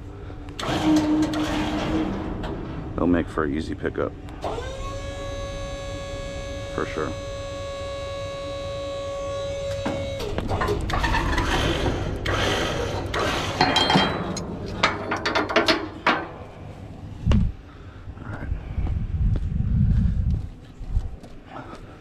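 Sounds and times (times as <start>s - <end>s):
steady hum: 0.0s - 22.0s
metal hook clanking and rattling: 13.6s - 16.3s.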